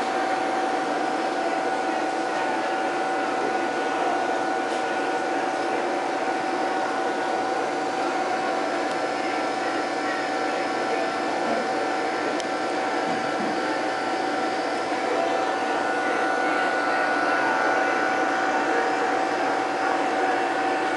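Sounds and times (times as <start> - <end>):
aquarium pumps humming: 0.0 - 20.9
constant whine-like hum: 0.0 - 20.9.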